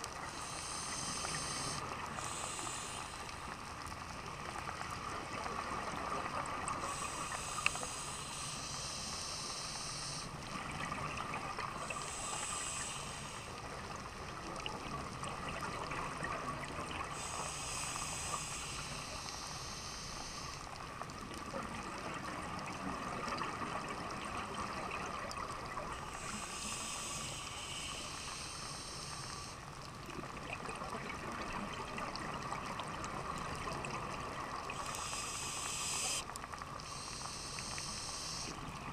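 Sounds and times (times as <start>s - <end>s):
underwater breathing bubbles: 0.0s - 3.6s, 4.7s - 14.7s, 15.5s - 20.7s, 21.5s - 38.9s
steady water hiss: 0.0s - 38.9s.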